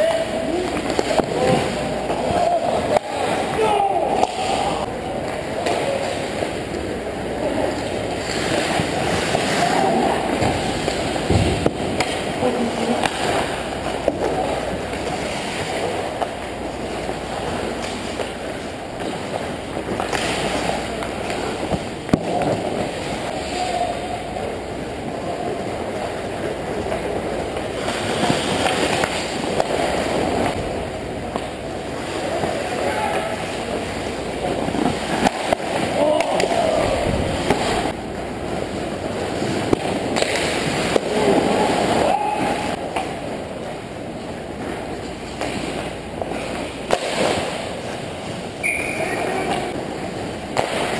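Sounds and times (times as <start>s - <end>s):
hockey sticks and puck knocking: 0.0s - 6.5s, 7.8s - 23.6s, 26.8s - 30.6s, 34.5s - 37.9s, 39.1s - 43.2s, 44.8s - 48.0s
skate blades scraping on ice: 7.5s - 23.7s, 26.9s - 30.6s.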